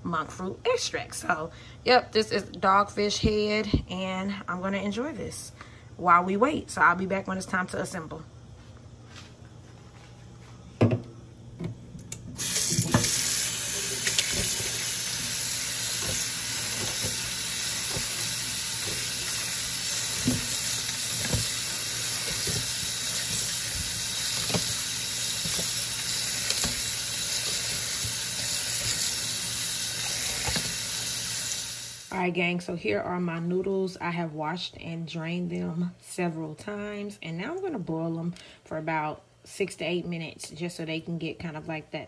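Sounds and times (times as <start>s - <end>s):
tap water running into sink: 12.3s - 32.1s
noodles splashing in colander: 12.4s - 32.1s.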